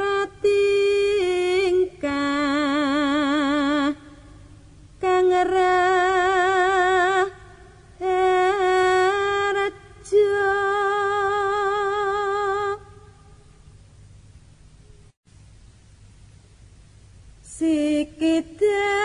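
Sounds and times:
woman singing unaccompanied: 0.0 - 4.4, 5.0 - 13.4, 17.4 - 19.0.

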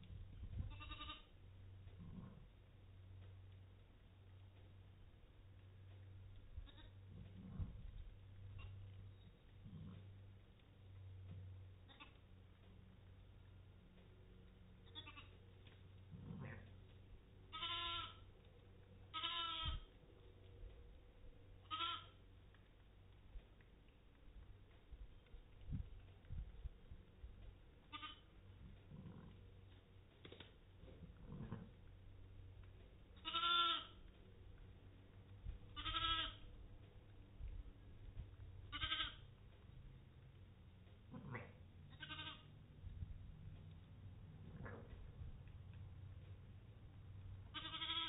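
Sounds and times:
sheep bleating: 0.7 - 1.3, 14.8 - 15.4, 17.5 - 18.3, 19.1 - 19.8, 21.6 - 22.2, 27.9 - 28.3, 33.2 - 34.0, 35.7 - 36.4, 38.7 - 39.3, 41.1 - 42.5, 47.5 - 48.0.

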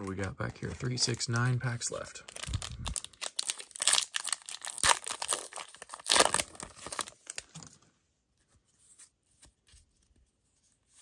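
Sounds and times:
foil wrapper crinkling and tearing: 2.3 - 7.5.

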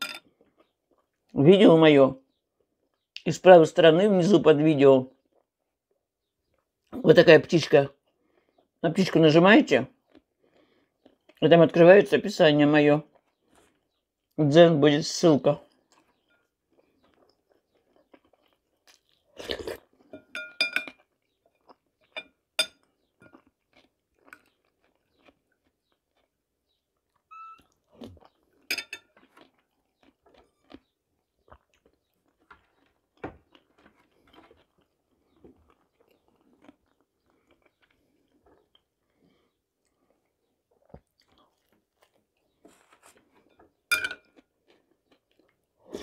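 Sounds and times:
metal spoon clinking glass bowl: 0.0 - 0.2, 20.1 - 21.0, 22.2 - 22.8, 28.7 - 29.1, 43.9 - 44.3
chewing and mouth noises: 9.9 - 11.4, 13.0 - 14.4, 15.6 - 20.3, 20.9 - 46.0.

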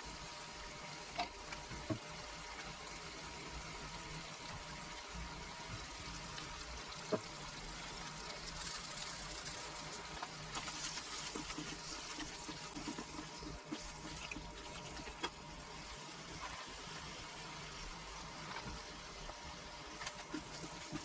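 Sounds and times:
vegetables sizzling in frying pan: 0.0 - 21.0
spatula stirring: 8.4 - 15.5, 19.9 - 21.0.

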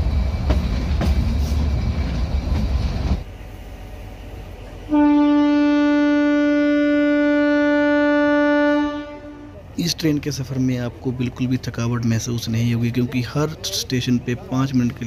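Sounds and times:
train rumbling on rails: 0.0 - 15.0
train horn long note: 4.9 - 9.6.

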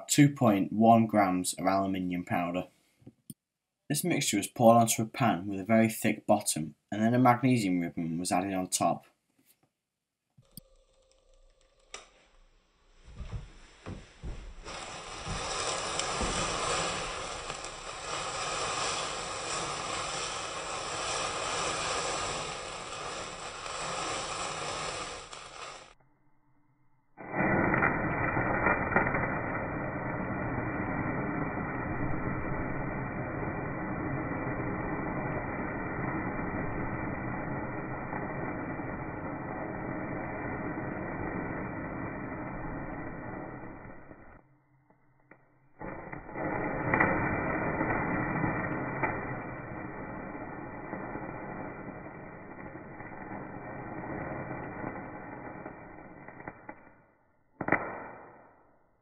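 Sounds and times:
low pops from burning fuse: 0.0 - 26.0, 27.2 - 59.0
sparks crackling: 10.2 - 26.0, 27.2 - 44.5, 45.2 - 59.0
thermite fizzing hiss: 13.0 - 26.0, 27.3 - 44.2, 46.1 - 56.4.

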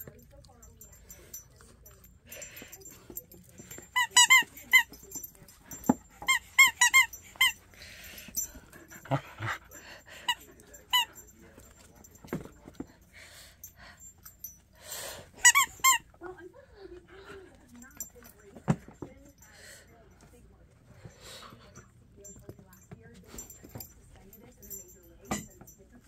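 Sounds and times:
dogs moving thumps and rustles: 0.0 - 13.4
squeaky dog toy squeaking: 3.6 - 8.5, 10.3 - 11.2, 15.3 - 16.2.

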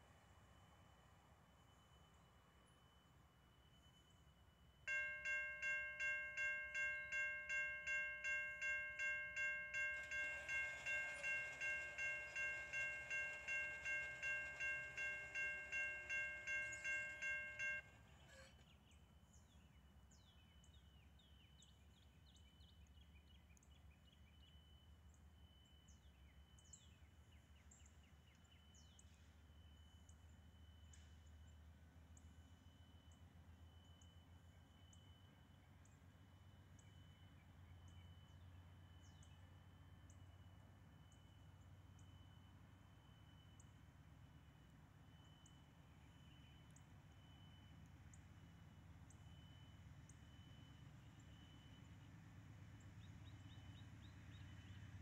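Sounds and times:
crossing warning bell ringing: 3.5 - 18.6.

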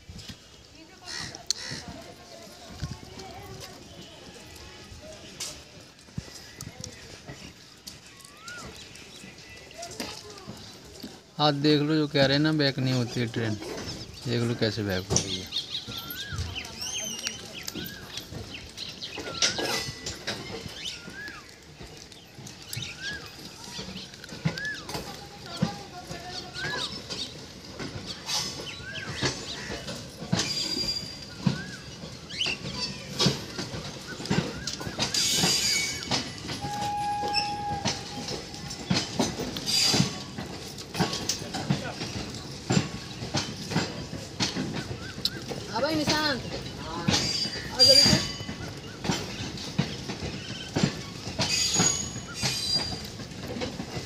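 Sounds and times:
train wheels clacking over rail joints: 0.0 - 54.0
wheel squeal: 28.1 - 41.2, 50.3 - 53.2.

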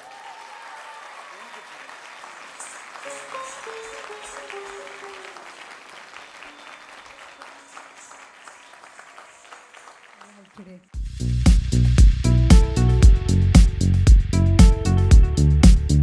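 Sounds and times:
audience applauding: 0.0 - 10.9
held music notes: 2.7 - 8.7.

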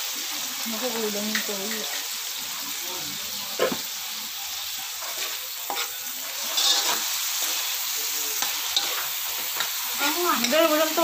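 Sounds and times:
meat sizzling in oil: 0.0 - 11.0
spatula scraping pan: 4.9 - 7.8, 8.4 - 11.0.

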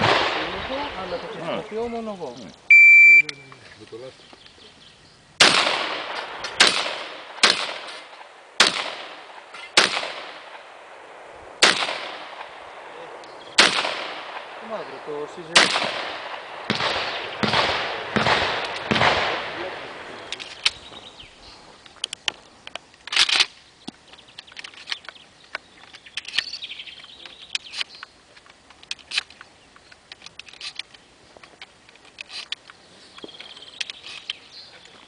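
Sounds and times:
shotgun shots echoing: 0.0 - 1.6, 5.4 - 20.8.

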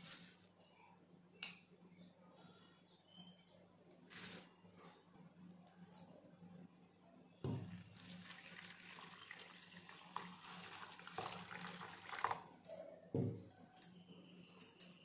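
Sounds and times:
water pouring into a bowl: 7.5 - 12.6.

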